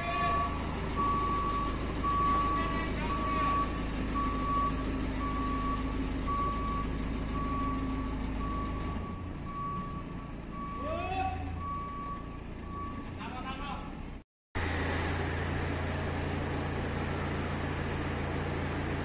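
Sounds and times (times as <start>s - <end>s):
forklift engine running: 0.0s - 19.0s
reversing alarm beeping: 0.1s - 13.2s.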